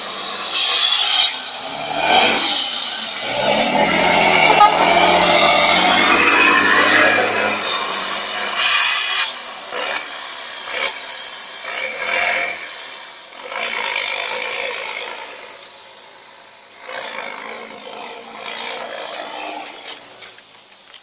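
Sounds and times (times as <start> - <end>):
truck diesel engine pulling hard: 0.0 - 20.7.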